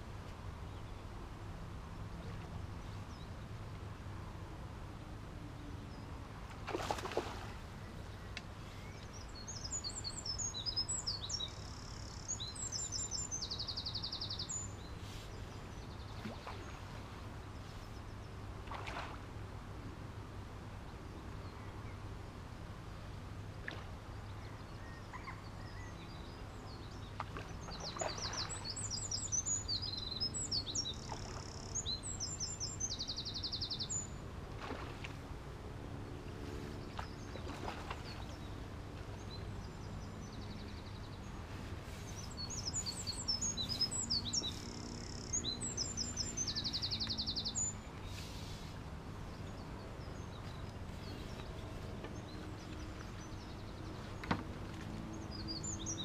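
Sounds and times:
songbird chirping with trills: 7.6 - 18.4, 24.2 - 34.3, 36.0 - 56.0.

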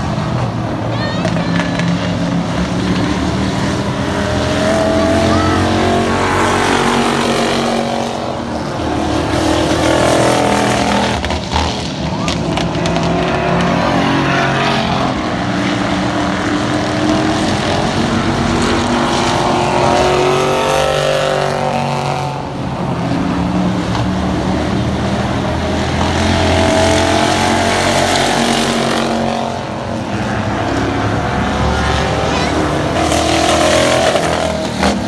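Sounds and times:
race car engines passing: 0.0 - 35.0.

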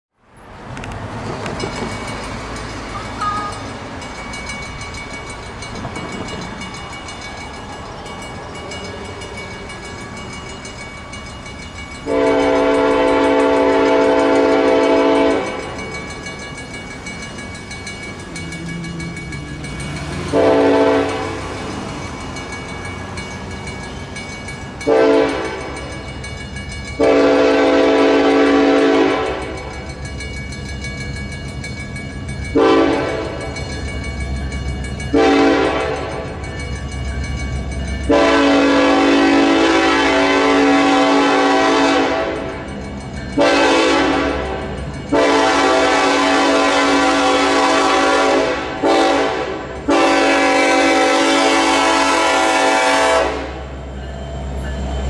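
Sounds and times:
train rumbling: 0.2 - 55.0
train air horn blasts: 12.1 - 15.6, 20.3 - 21.5, 24.9 - 25.8, 27.0 - 29.6, 32.6 - 33.4, 35.2 - 36.2, 38.1 - 42.5, 43.4 - 53.7.

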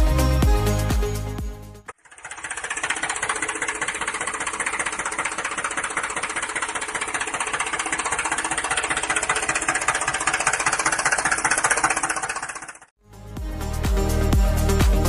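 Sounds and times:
small motor rattling buzz: 1.9 - 13.0.

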